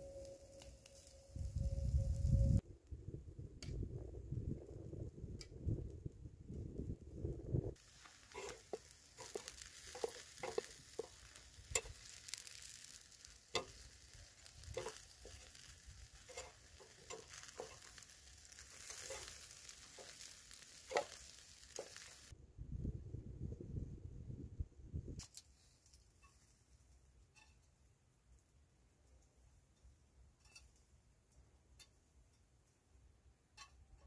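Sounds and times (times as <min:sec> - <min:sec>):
faint steady hiss: 0:00.0 - 0:02.6, 0:07.6 - 0:22.3
food sizzling in a pan: 0:00.0 - 0:02.6, 0:07.8 - 0:22.3
utensil scraping a pan: 0:07.8 - 0:22.3.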